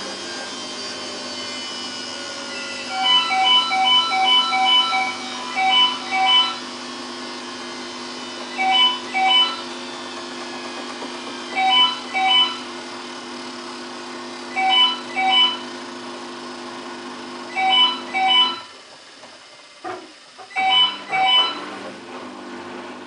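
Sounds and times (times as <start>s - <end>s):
washing machine humming: 0.0s - 23.0s
two-note electronic beeps: 2.8s - 6.7s, 8.5s - 9.8s, 11.5s - 12.8s, 14.5s - 15.7s, 17.5s - 18.7s, 20.5s - 21.8s.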